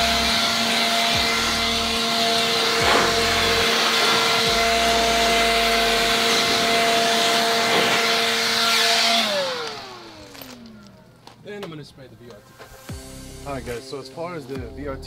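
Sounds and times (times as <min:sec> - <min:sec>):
leaf blower running: 0:00.0 - 0:11.4.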